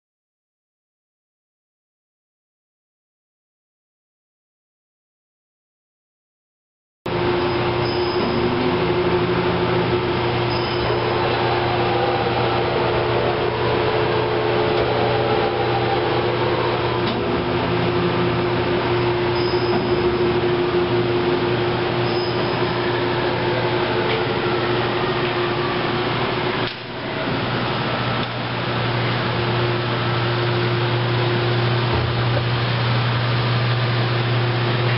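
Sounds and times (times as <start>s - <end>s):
machinery humming: 7.1s - 34.9s
motor and fan hiss: 7.1s - 34.9s.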